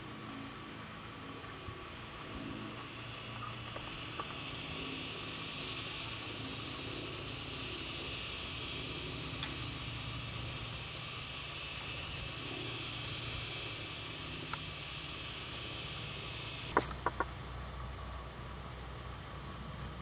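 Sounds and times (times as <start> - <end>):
insects buzzing: 0.0 - 20.0
low steady hum: 0.0 - 20.0
faint click: 14.5 - 14.7.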